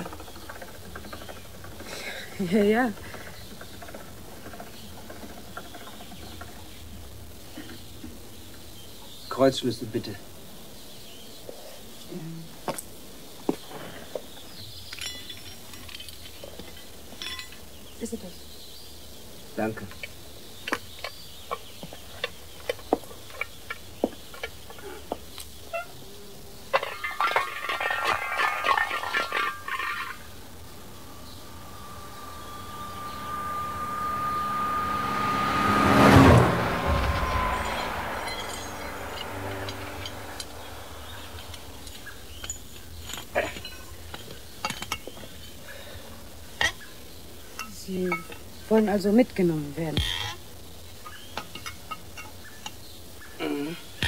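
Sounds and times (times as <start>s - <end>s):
metal tools clinking: 14.9s - 17.6s, 36.9s - 45.3s
ringing metallic clatter: 15.0s - 17.6s, 26.8s - 45.2s
car passing: 28.7s - 42.8s.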